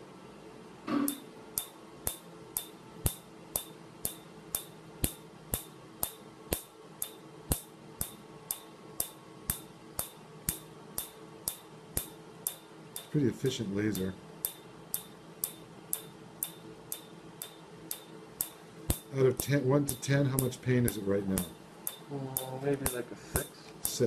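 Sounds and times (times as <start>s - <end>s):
low machine hum: 0.0s - 24.0s
laser pulses snapping clicks: 14.0s - 24.0s.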